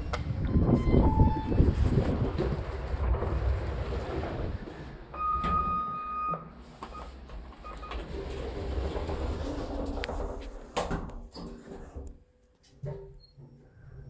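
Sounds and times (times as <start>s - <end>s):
lift beep: 0.0s - 1.8s, 5.1s - 8.1s
lift doors sliding shut: 0.0s - 12.1s.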